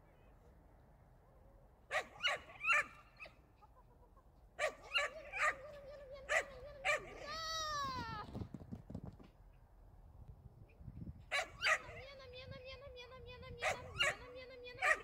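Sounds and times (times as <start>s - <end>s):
puppy barking: 1.9s - 3.4s, 4.6s - 7.2s, 11.3s - 12.0s, 13.6s - 15.0s.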